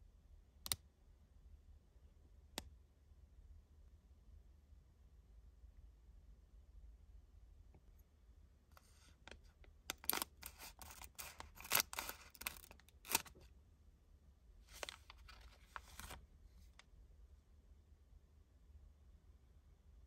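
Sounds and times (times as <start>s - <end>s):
plastic wrapper crinkling: 9.9s - 13.4s, 14.7s - 16.2s
scissors snipping plastic foil: 9.9s - 13.4s.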